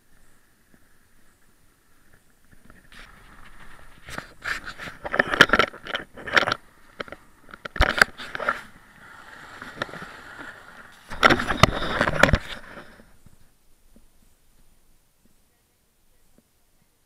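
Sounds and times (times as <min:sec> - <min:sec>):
rustling and knocking: 0:02.1 - 0:14.7.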